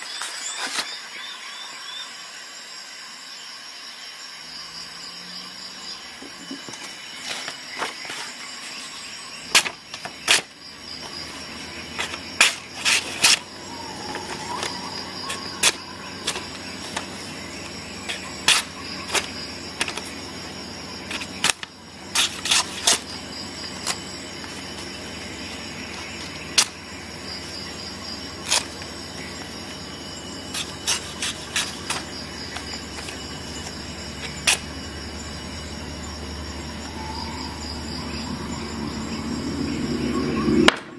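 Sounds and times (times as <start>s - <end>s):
knife cutting through paper: 9.5s - 10.5s, 11.9s - 13.5s, 21.1s - 23.1s, 30.5s - 34.7s
faint high whine: 10.7s - 40.9s.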